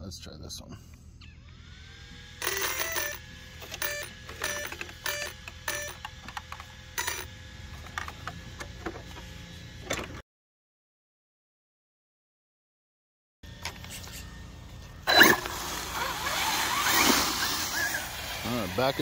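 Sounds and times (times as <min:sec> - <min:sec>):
short buzzy beeps: 0:02.4 - 0:06.0.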